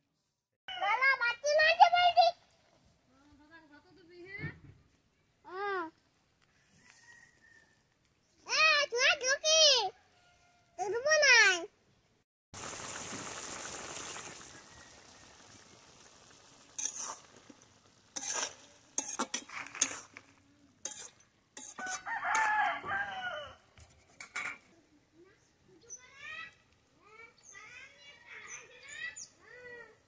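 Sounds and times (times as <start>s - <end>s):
rooster crowing: 6.7s - 7.8s, 10.0s - 10.8s, 14.4s - 15.7s, 21.7s - 23.7s
curry sizzling in a pan: 12.6s - 23.0s
utensil clacking against pot: 18.2s - 20.3s, 20.9s - 22.5s.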